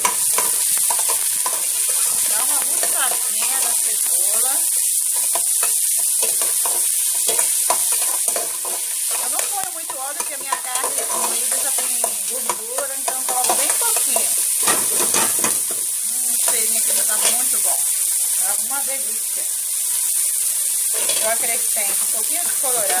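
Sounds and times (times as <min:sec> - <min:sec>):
metal spoon scraping a pot: 0:00.0 - 0:15.8, 0:20.9 - 0:23.0
vegetables sizzling in oil: 0:00.0 - 0:23.0.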